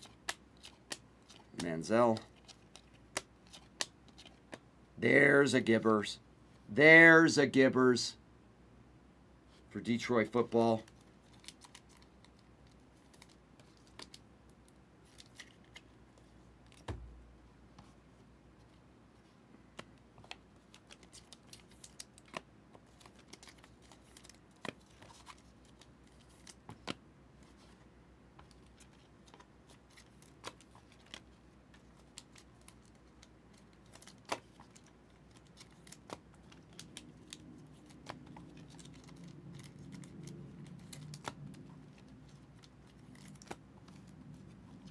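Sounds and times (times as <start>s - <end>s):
trading cards being handled: 0.0s - 4.6s, 9.6s - 17.2s, 19.7s - 44.9s
soft thump: 16.9s - 17.2s.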